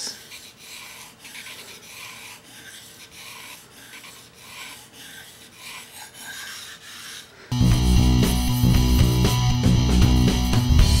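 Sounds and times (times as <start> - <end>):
knife scraping on whetstone: 0.0 - 7.6.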